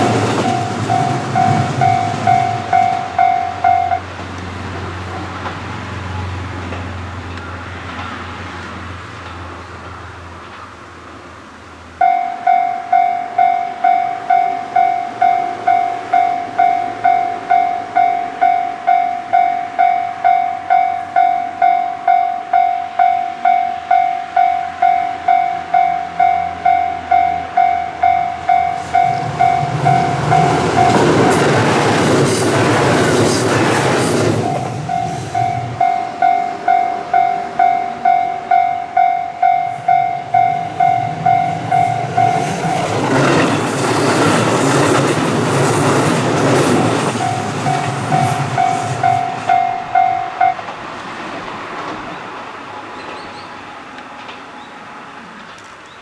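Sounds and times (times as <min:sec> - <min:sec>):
level-crossing warning bell: 0:00.0 - 0:04.2, 0:12.0 - 0:50.7
train passing rumble: 0:00.0 - 0:56.0.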